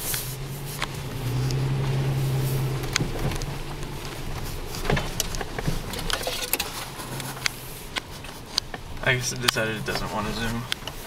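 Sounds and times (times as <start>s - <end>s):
vehicle engine running: 0.0s - 11.0s
clicks and crackles: 2.8s - 11.0s.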